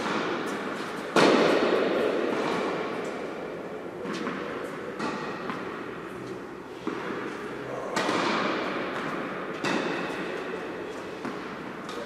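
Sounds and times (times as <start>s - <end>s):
tennis ball bouncing: 0.0s - 12.0s
loud echoing thud: 1.1s - 3.0s, 7.9s - 10.3s.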